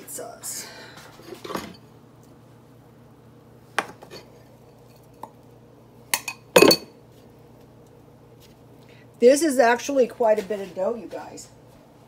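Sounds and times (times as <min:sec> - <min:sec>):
metal spoon clinking glass bowl: 0:06.2 - 0:06.9.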